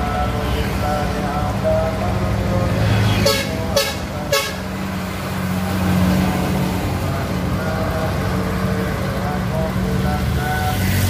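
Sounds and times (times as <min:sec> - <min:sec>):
truck diesel engine hum: 0:00.0 - 0:11.0
vehicle horn toots: 0:03.0 - 0:04.6.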